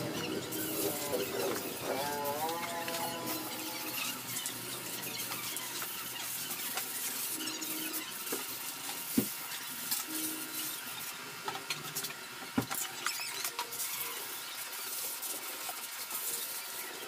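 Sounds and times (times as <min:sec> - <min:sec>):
steady hiss: 0:00.0 - 0:11.3.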